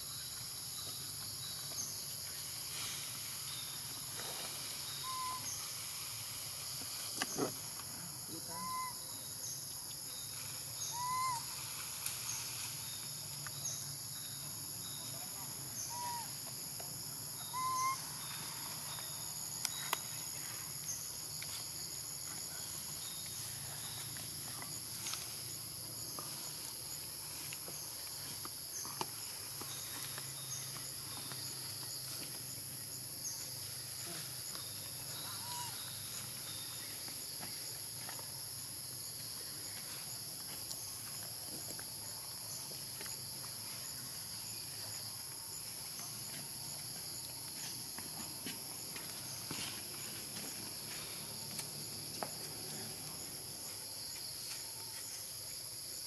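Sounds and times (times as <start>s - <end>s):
insects chorus: 0.0s - 56.0s.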